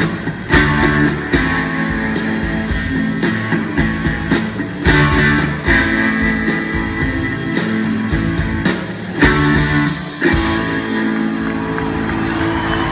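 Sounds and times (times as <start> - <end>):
bass guitar: 0.0 - 12.9
electric guitar chords: 0.0 - 12.9.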